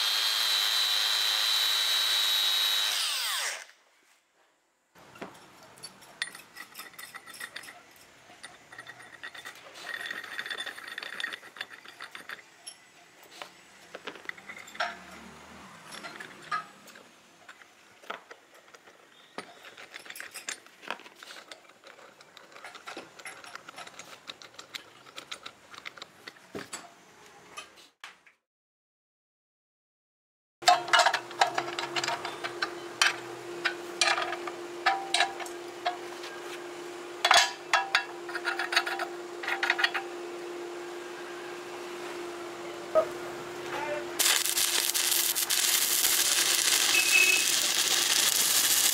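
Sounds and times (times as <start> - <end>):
small metallic clicks and ticks: 15.9 - 26.9.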